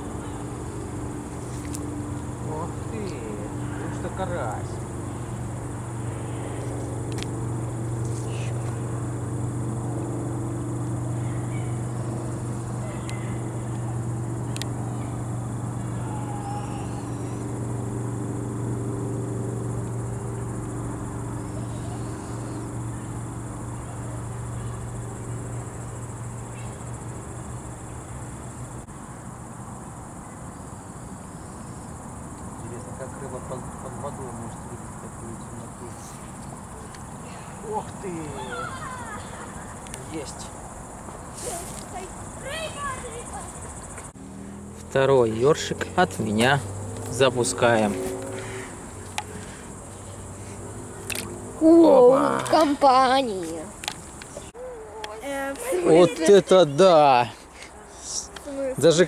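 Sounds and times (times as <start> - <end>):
low motor drone: 0.0 - 28.9, 44.0 - 54.6
insects chirring: 0.0 - 59.0.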